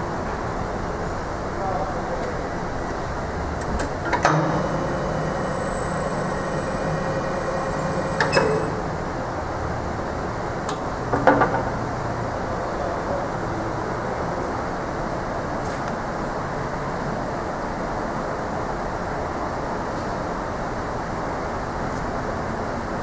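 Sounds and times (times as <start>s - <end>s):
constant background noise: 0.0s - 23.0s
machine clicks: 3.7s - 9.1s
angle roll machine whining: 3.9s - 9.6s.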